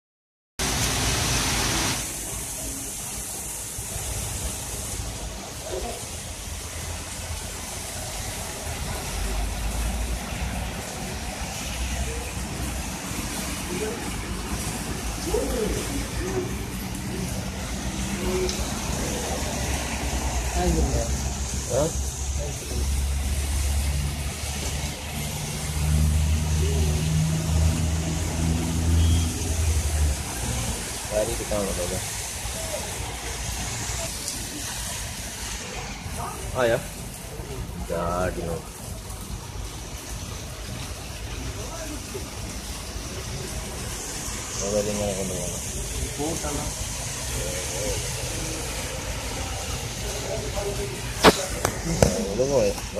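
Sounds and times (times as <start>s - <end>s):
heavy rain hiss: 0.6s - 52.9s
road traffic rumble: 0.6s - 52.9s
vehicle engines droning: 7.1s - 36.0s, 42.1s - 52.9s.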